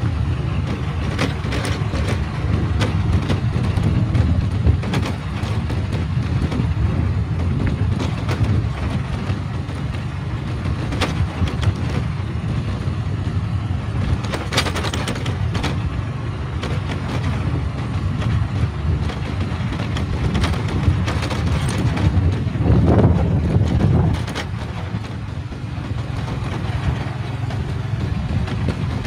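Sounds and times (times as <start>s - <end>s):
knocks and rattles: 0.0s - 29.0s
motorcycle engine and road noise: 0.0s - 29.0s.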